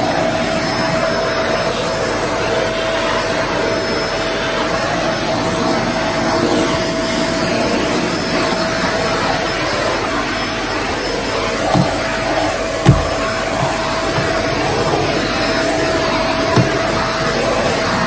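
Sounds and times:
vacuum cleaner running on carpet: 0:00.0 - 0:18.0
low thumps: 0:11.7 - 0:17.2.

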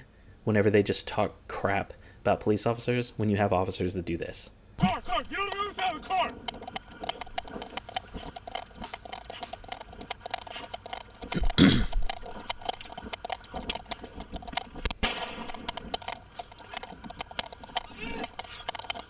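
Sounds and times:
duty gear rattling: 0:04.8 - 0:19.0
sharp crack: 0:14.6 - 0:17.2.

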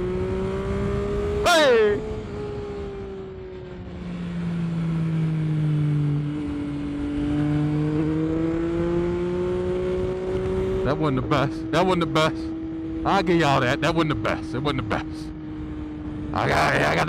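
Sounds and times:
motorcycle engine running: 0:00.0 - 0:16.4
wind and road noise: 0:00.0 - 0:17.0.

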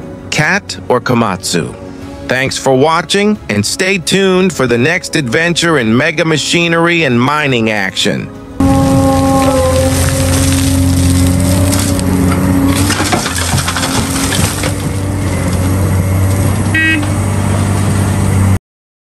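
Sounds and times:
excavator diesel engine running: 0:08.6 - 0:18.6
rock crashing into truck bed: 0:12.7 - 0:15.0.

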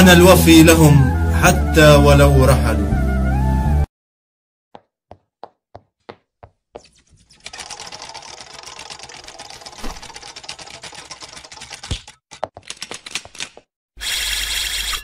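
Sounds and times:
rapid clicking rattle: 0:07.4 - 0:13.5.

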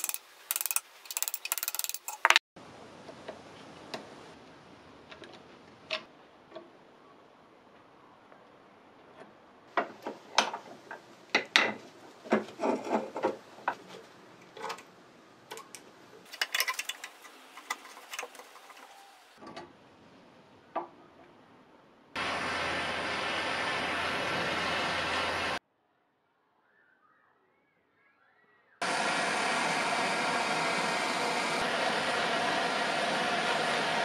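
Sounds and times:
metal tools scraping and clicking: 0:00.0 - 0:02.4, 0:15.5 - 0:19.0
gas torch hissing: 0:28.8 - 0:34.0.

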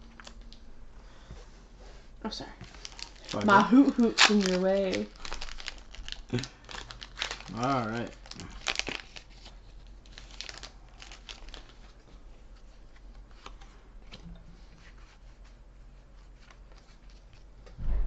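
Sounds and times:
foil wrapper crinkling: 0:02.6 - 0:12.0.

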